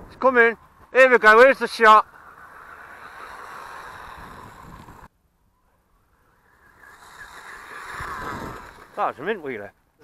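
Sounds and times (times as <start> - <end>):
electric toy car whirring: 1.6 - 5.1, 5.9 - 9.2.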